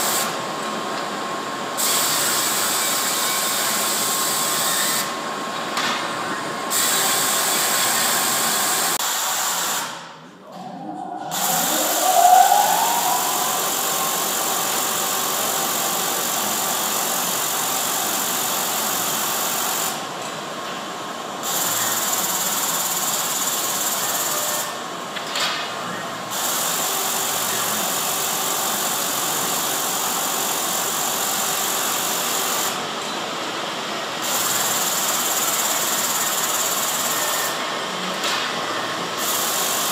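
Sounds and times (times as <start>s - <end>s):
motor spinning up whine: 10.4s - 16.6s.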